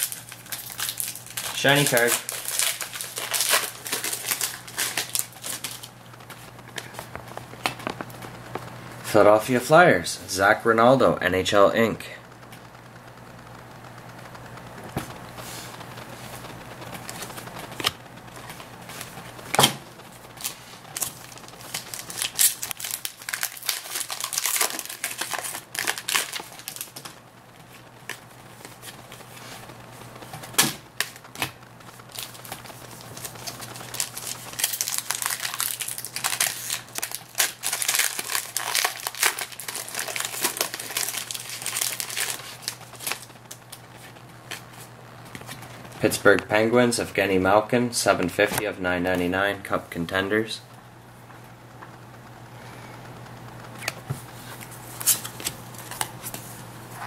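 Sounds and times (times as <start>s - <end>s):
cards snapping and shuffling: 0.0s - 8.2s, 17.0s - 19.8s, 30.3s - 31.6s, 53.8s - 56.4s
foil wrappers crinkling: 0.0s - 8.3s, 15.7s - 46.1s, 53.7s - 57.0s.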